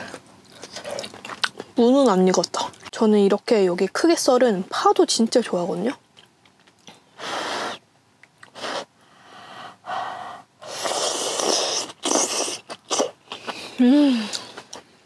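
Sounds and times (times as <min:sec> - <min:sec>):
person breathing hard while eating: 0:08.6 - 0:11.5
person humming: 0:13.8 - 0:14.5.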